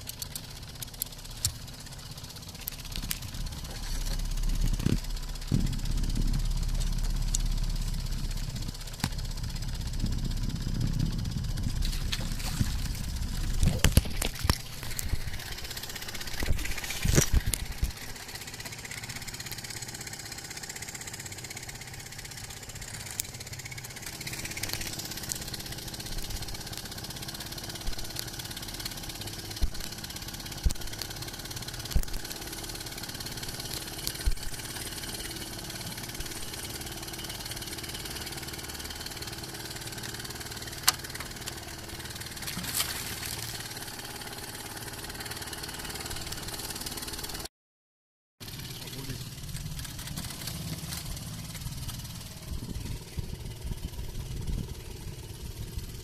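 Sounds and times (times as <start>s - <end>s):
sharp knocks and clatters of gear: 0.0s - 15.6s, 16.2s - 18.8s
boat engine idling: 0.0s - 47.5s, 48.4s - 56.0s.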